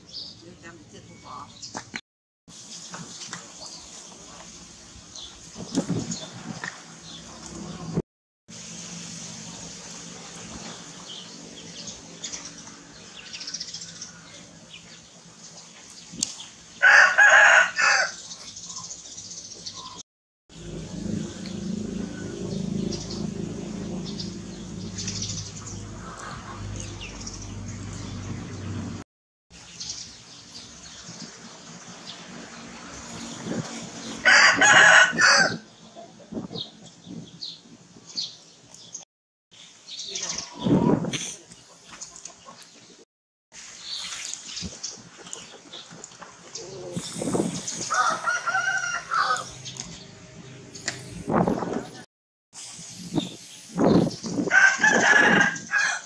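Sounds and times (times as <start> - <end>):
birds chirping: 9.4 - 17.6, 18.2 - 20.0, 20.6 - 29.0
rooster crowing: 16.8 - 18.2, 34.2 - 35.7, 47.9 - 49.6, 54.5 - 56.0.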